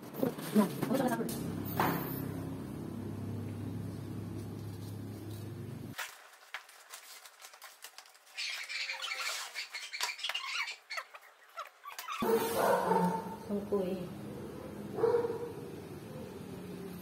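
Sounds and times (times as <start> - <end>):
low hum: 1.4 - 6.0.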